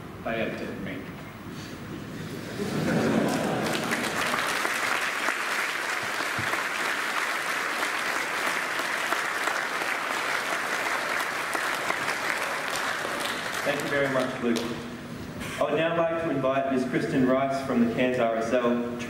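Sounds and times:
audience applauding: 0:02.6 - 0:14.8.

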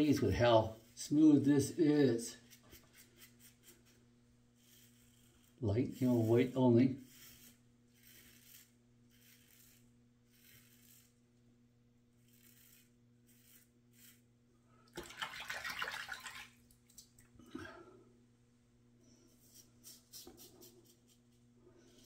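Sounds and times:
razor scraping stubble: 0:00.0 - 0:04.0, 0:04.6 - 0:11.2, 0:12.1 - 0:14.3.

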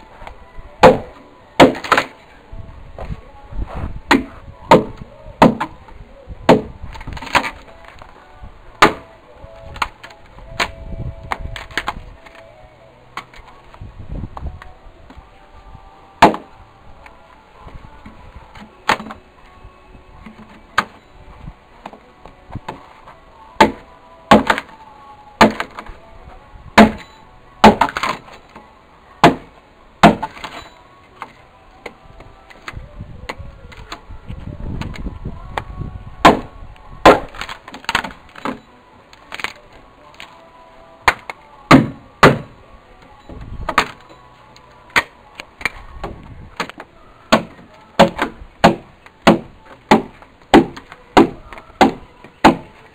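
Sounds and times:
axe chopping wood: 0:00.8 - 0:02.2, 0:04.1 - 0:05.8, 0:06.5 - 0:07.6, 0:08.8 - 0:12.4, 0:16.2 - 0:16.5, 0:18.6 - 0:19.2, 0:20.2 - 0:21.0, 0:23.6 - 0:24.7, 0:25.4 - 0:25.9, 0:26.8 - 0:28.4, 0:29.2 - 0:32.0, 0:36.2 - 0:38.6, 0:41.0 - 0:42.6, 0:43.7 - 0:44.0, 0:44.9 - 0:52.8.

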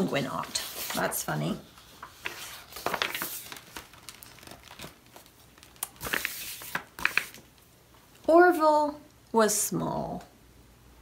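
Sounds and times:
book pages rustling: 0:00.0 - 0:07.6.

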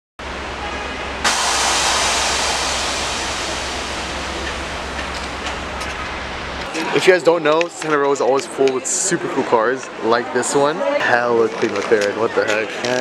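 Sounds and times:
loud hiss: 0:01.2 - 0:06.7
steady low hum: 0:01.2 - 0:06.7.

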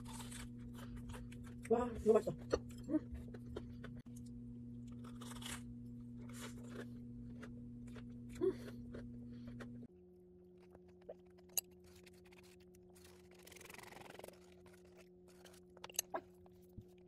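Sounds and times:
crunching of fried bread: 0:00.0 - 0:01.6, 0:04.8 - 0:09.8, 0:10.6 - 0:16.4
low hum: 0:00.0 - 0:17.0.

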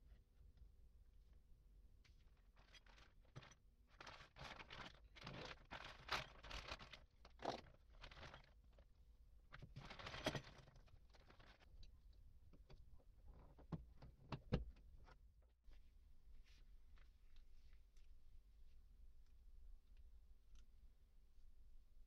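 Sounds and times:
plastic bag crinkling: 0:02.6 - 0:08.6.

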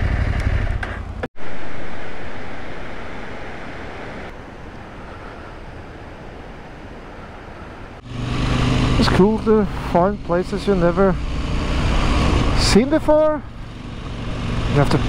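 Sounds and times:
motorcycle engine running: 0:00.0 - 0:01.3, 0:08.0 - 0:15.0
river rapids and waterfall rushing: 0:01.4 - 0:08.0
wind noise: 0:01.4 - 0:10.0.

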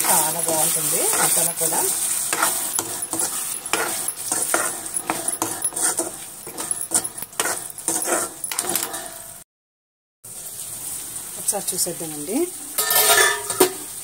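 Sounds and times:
spatula scraping a pan: 0:00.0 - 0:09.2, 0:12.8 - 0:13.8
food sizzling: 0:00.0 - 0:09.4, 0:10.3 - 0:14.0.

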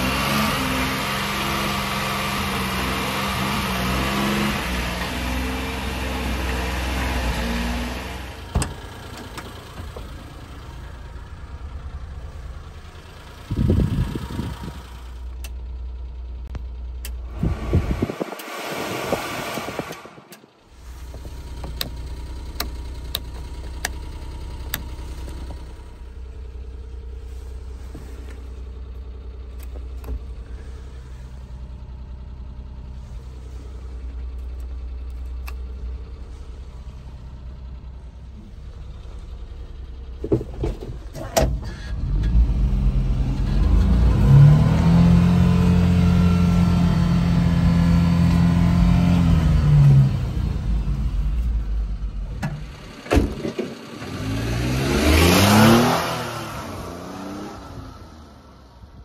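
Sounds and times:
truck engine idling: 0:08.3 - 0:17.4, 0:19.9 - 0:41.9
thump: 0:08.5 - 0:08.8, 0:52.4 - 0:53.7.

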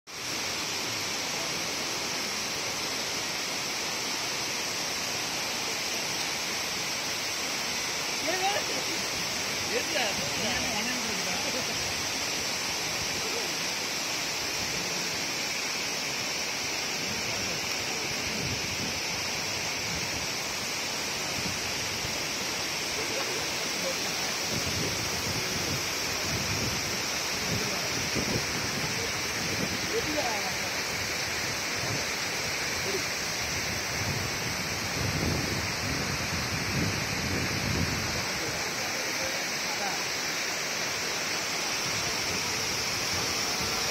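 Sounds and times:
waterfall rushing: 0:00.1 - 0:43.9
wind buffeting microphone: 0:33.6 - 0:38.3.

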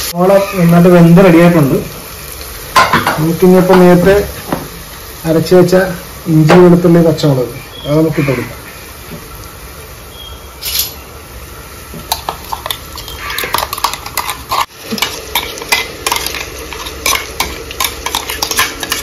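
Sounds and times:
onions sizzling: 0:00.0 - 0:19.0
metal spoon scraping a steel cup: 0:13.0 - 0:19.0.

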